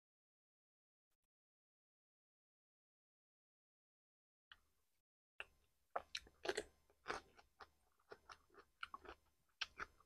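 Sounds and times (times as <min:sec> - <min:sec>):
crunchy chewing of cucumber: 0:06.0 - 0:10.0.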